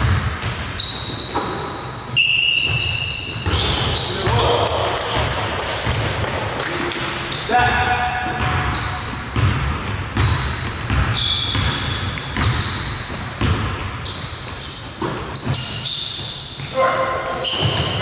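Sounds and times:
shoe squeaks: 0:00.0 - 0:04.6, 0:07.2 - 0:07.7, 0:08.6 - 0:09.5, 0:10.2 - 0:18.0
basketball bouncing on gym floor: 0:00.0 - 0:18.0.

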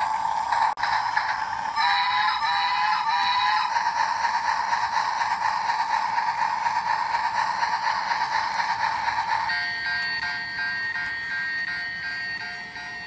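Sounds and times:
pulsing electronic toy tone: 0:01.1 - 0:05.1.

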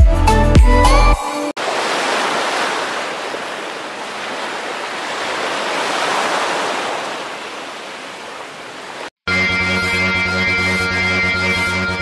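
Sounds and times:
waves breaking on a sandy beach: 0:01.6 - 0:09.1.

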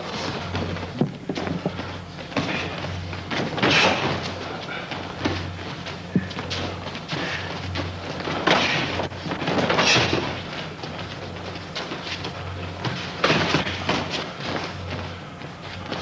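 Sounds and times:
steady low hum: 0:00.0 - 0:16.0
thuds of kicks and blows: 0:02.4 - 0:04.5.

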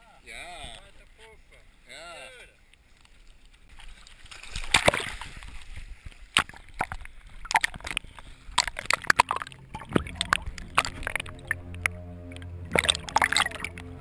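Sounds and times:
underwater sharp clicks and knocks: 0:03.7 - 0:13.9
person splashing into sea: 0:04.2 - 0:11.6, 0:12.7 - 0:13.8
underwater gurgling and bubbling: 0:05.4 - 0:14.0.

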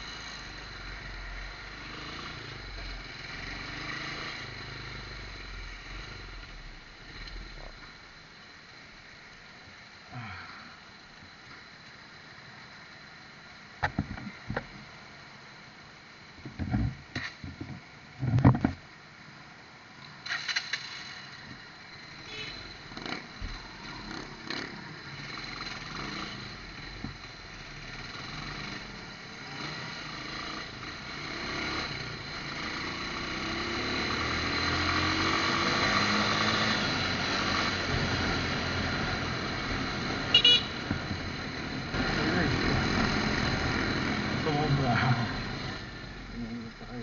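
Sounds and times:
motorcycle engine: 0:00.0 - 0:08.1, 0:22.2 - 0:47.0
road noise: 0:00.0 - 0:47.0
vehicle horn beeping: 0:22.2 - 0:22.8, 0:40.3 - 0:40.9.

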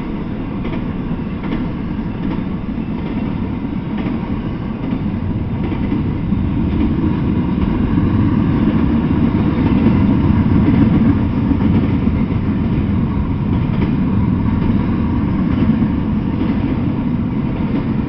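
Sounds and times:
train wheels rumbling on rail: 0:00.0 - 0:18.0.

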